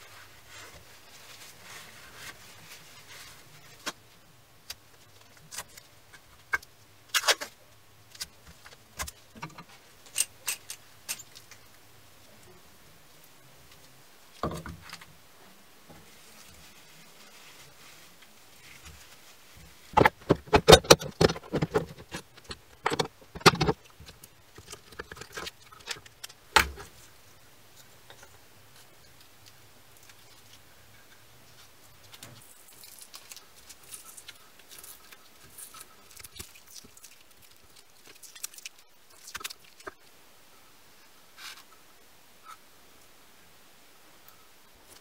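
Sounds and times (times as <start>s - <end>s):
masking tape being peeled: 32.2s - 40.0s.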